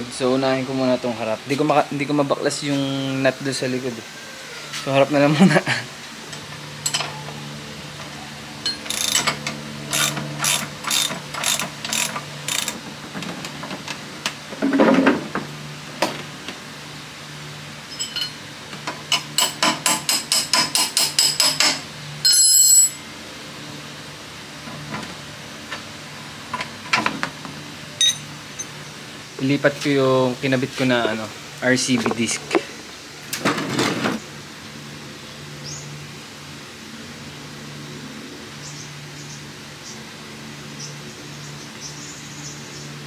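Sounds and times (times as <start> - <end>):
ratchet wrench clicking: 8.7 - 12.8.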